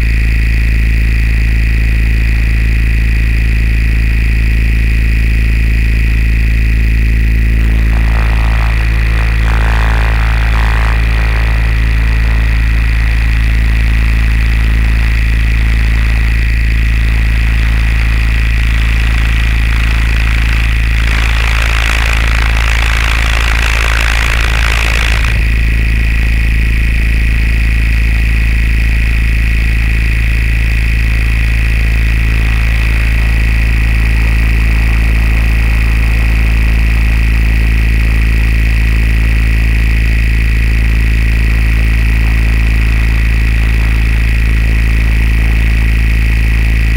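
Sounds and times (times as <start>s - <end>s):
aircraft motor droning: 5.6s - 27.0s, 28.9s - 46.9s
rushing noise: 7.6s - 25.8s, 30.7s - 38.0s.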